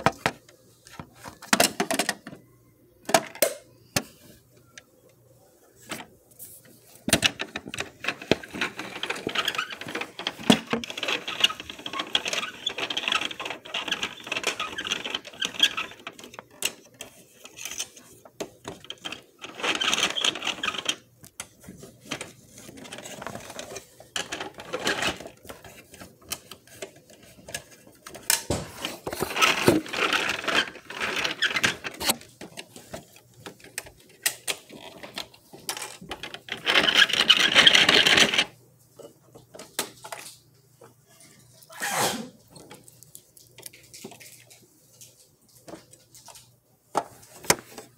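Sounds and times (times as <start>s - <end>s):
plastic toy parts clattering: 0.0s - 2.4s, 7.0s - 38.6s.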